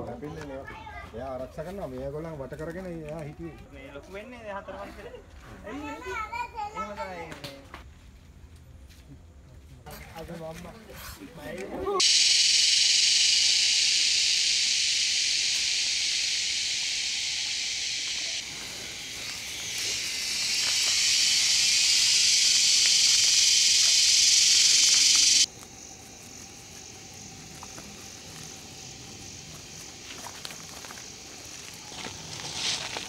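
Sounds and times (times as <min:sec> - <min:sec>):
insects buzzing: 0:12.0 - 0:33.0.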